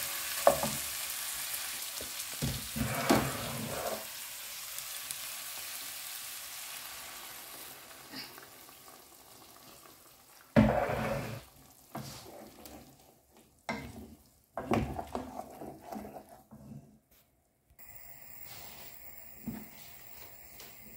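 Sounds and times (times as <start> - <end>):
food sizzling in frying pan: 0.0 - 13.0, 17.8 - 20.9
spatula scraping pan: 2.4 - 4.2, 10.6 - 13.0, 13.7 - 17.0.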